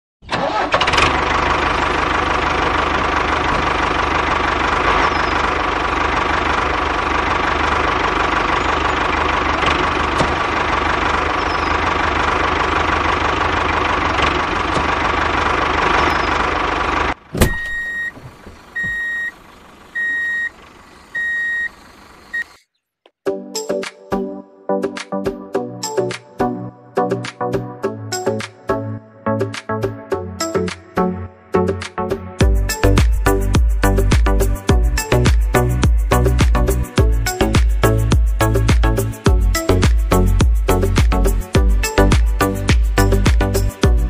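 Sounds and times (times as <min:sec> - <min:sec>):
short beeps: 0:17.5 - 0:18.2, 0:18.8 - 0:19.4, 0:20.0 - 0:20.5, 0:21.1 - 0:22.7.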